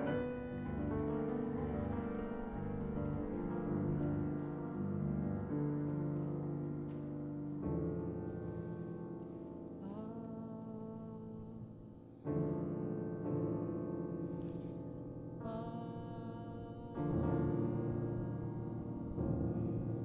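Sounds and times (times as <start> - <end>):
grand piano chords: 0.0 - 20.0.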